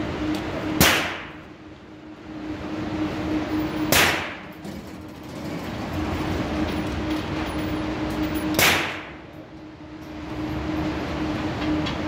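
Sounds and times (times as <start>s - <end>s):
ventilation roar and hum: 0.0s - 12.0s
handgun shot echoing indoors: 0.8s - 1.4s, 3.9s - 4.4s, 8.6s - 9.2s.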